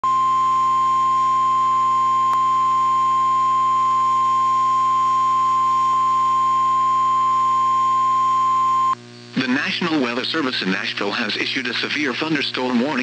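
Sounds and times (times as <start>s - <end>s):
steady alarm tone: 0.1s - 9.0s.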